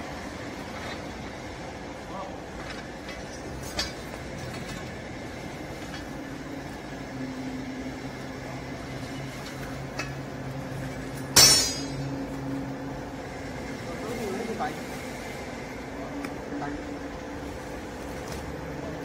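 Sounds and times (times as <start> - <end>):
sharp metallic clank: 11.3 - 12.2.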